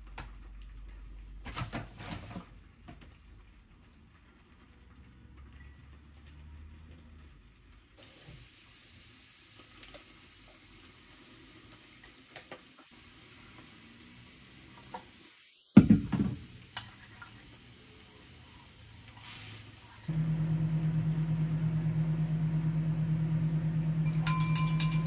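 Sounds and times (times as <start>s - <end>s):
background hiss: 7.8s - 20.2s.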